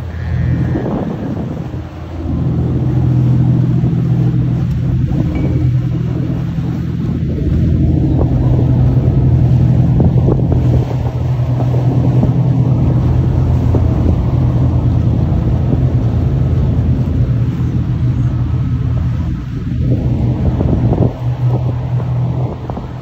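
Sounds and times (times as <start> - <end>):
boat engines droning: 0.0 - 23.0
wake washing: 0.0 - 23.0
wind buffeting microphone: 0.0 - 23.0.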